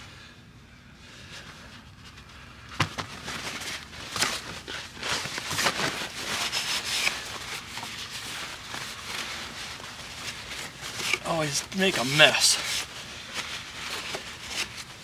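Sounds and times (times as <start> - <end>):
paper towel crinkling and rubbing: 3.0 - 15.0.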